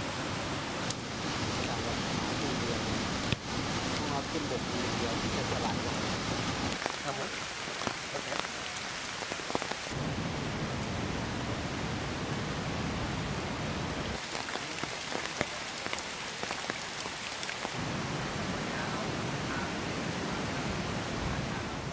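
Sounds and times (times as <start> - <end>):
rain on foliage: 0.0 - 21.9
water drips: 14.1 - 17.8.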